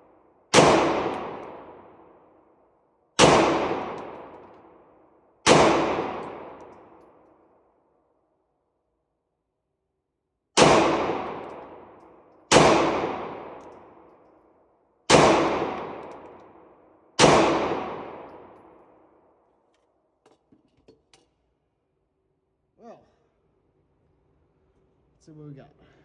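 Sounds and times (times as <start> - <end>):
pistol shots echoing indoors: 0.0 - 20.2.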